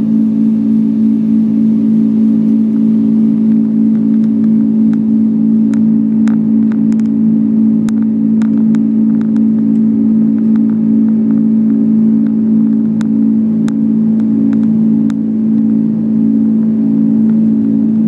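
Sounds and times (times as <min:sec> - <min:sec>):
aircraft engines droning: 0:00.0 - 0:18.0.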